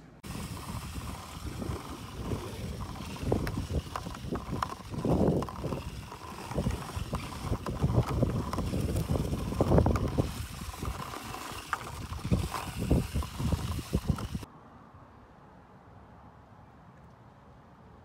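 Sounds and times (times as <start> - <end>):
wind buffeting microphone: 0.2 - 14.5
golf balls clicking together: 0.4 - 14.5.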